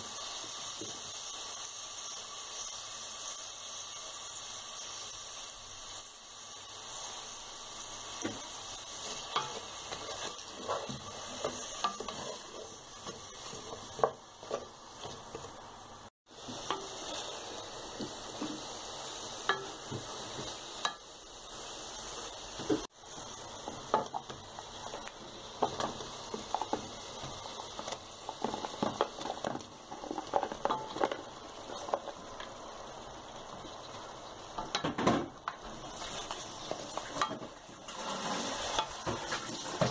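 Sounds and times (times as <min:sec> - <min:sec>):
onions sizzling in hot oil: 0:00.0 - 0:39.9
wooden spoon scraping a pot: 0:08.2 - 0:15.5, 0:35.8 - 0:39.9.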